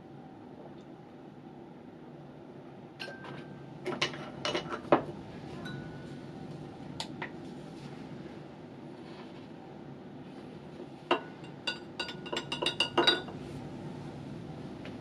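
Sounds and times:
glass rod clinking on beaker: 11.1 - 13.3.

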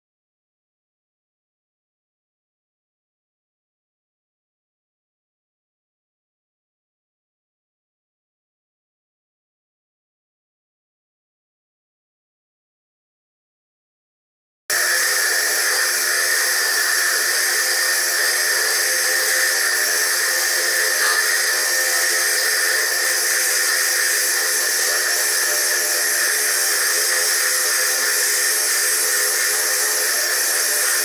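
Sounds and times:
lathe drill grinding stone: 14.7 - 31.0.

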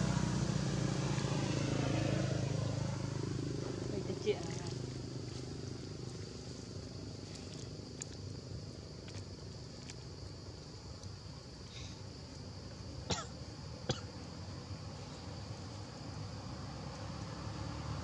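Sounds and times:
faint high hum: 3.6 - 16.3.

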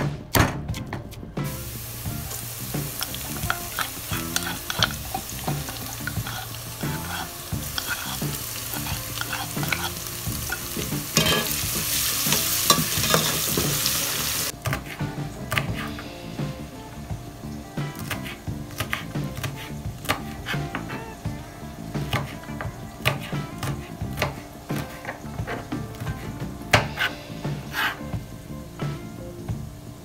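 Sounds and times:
onions sizzling in oil: 1.5 - 30.0
metal spatula scraping pot: 2.3 - 15.2.

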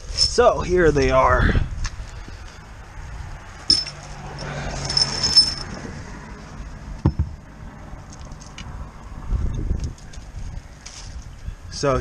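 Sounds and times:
metal valves clinking: 3.7 - 5.8.

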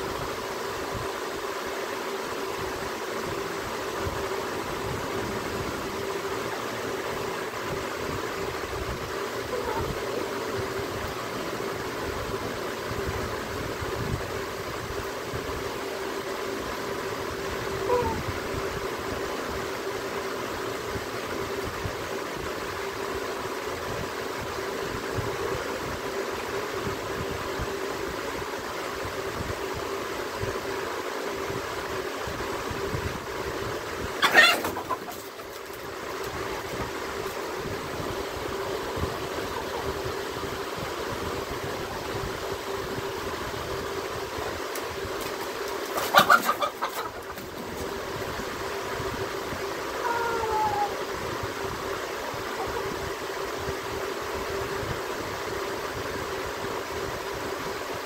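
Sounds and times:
steady low hum: 0.0 - 58.0
chickens squawking: 9.4 - 10.4, 17.7 - 18.3, 34.1 - 36.0, 38.8 - 40.3, 45.8 - 48.0, 49.8 - 51.1, 52.4 - 53.0.

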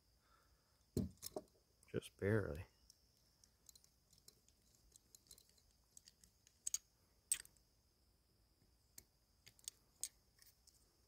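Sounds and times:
handcuff metallic clicks: 3.4 - 7.6.

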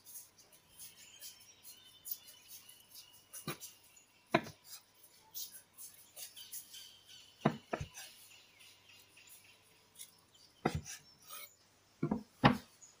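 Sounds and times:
knife knocking on wooden board: 4.3 - 4.6, 7.4 - 7.9, 12.0 - 12.6.

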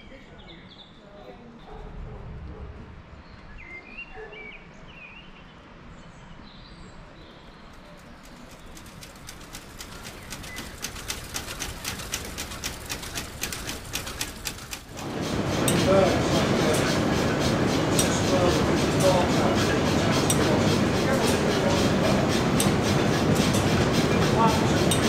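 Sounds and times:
birds chirping: 6.6 - 25.0
mill machinery clattering: 7.6 - 25.0.

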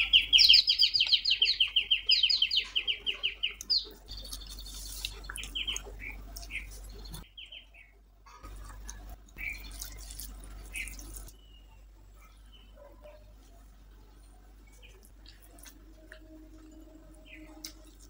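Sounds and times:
small bird chirping: 0.0 - 8.6, 9.4 - 15.5, 17.1 - 18.0
fingers squishing wet rice: 3.5 - 7.2, 8.5 - 11.3.

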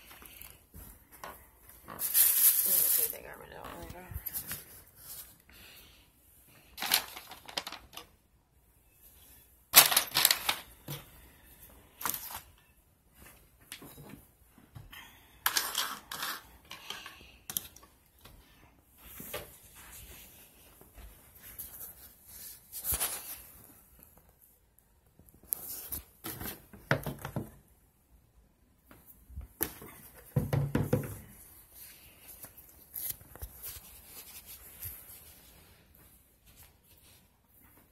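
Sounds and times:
items clattering on wooden table: 6.8 - 8.1, 9.8 - 11.0.

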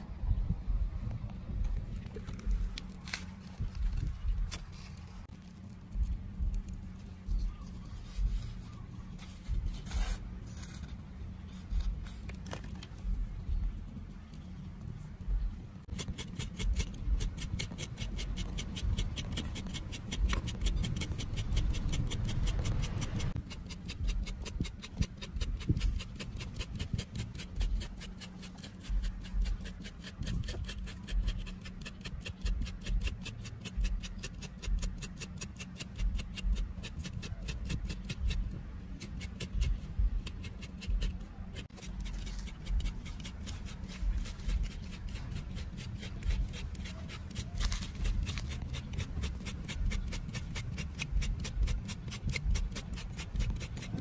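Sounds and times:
knife scraping aloe leaf: 15.9 - 54.0.

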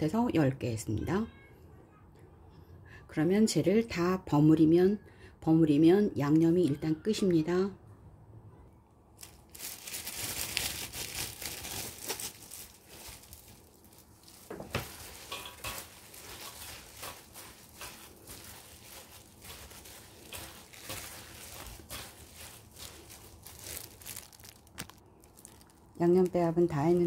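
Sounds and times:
plastic glove crinkling: 9.2 - 27.0.

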